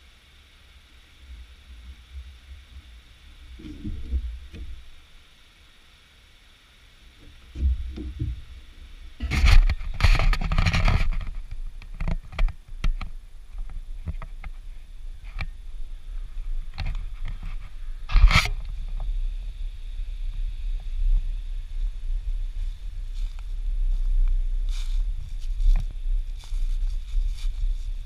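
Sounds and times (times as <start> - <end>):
scraping rustle: 7.2 - 19.6, 20.3 - 28.0
low rumble: 11.0 - 28.0.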